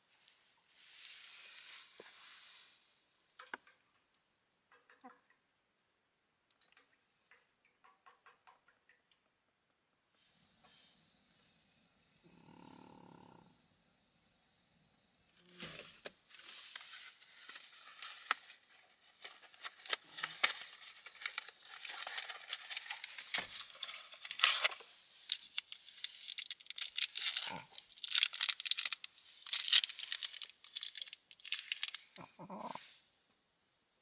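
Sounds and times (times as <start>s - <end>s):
crinkling and rustling: 15.5s - 32.7s.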